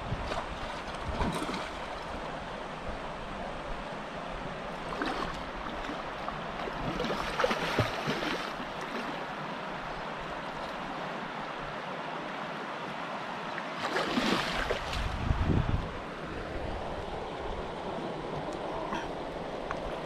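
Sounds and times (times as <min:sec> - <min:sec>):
water splashes: 0:00.0 - 0:02.3, 0:04.7 - 0:09.7, 0:13.5 - 0:15.6
creek water running: 0:00.0 - 0:20.0.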